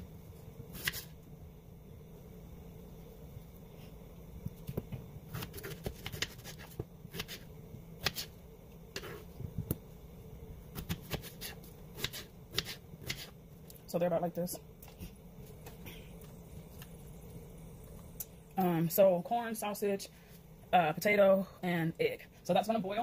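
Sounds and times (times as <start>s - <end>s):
low steady hum: 0.0s - 23.0s
knife slicing a raw potato: 0.7s - 1.1s, 4.7s - 8.3s, 10.8s - 13.4s.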